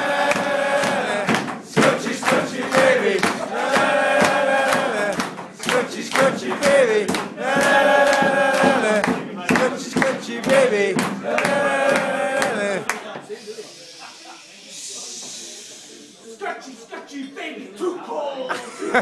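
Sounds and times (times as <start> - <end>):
men chanting in unison: 0.0 - 12.9.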